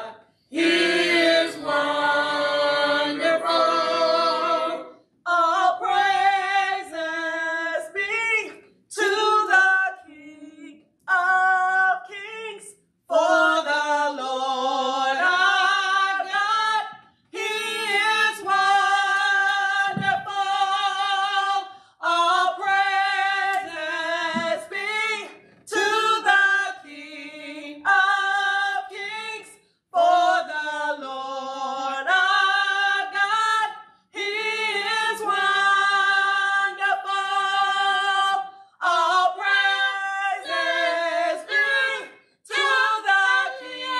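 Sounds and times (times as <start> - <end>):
choir singing: 0.0 - 7.9, 13.1 - 43.9.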